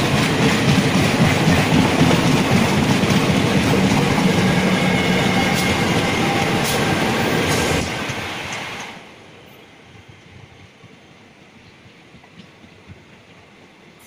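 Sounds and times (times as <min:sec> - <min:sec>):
track clatter: 0:00.0 - 0:09.1
train wheels rumbling on rail: 0:00.0 - 0:14.0.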